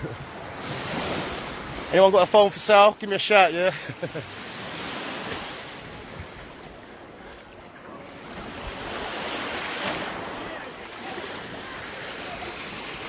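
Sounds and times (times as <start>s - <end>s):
sea waves lapping at shore: 0.0s - 13.0s
wind on microphone: 4.6s - 13.0s.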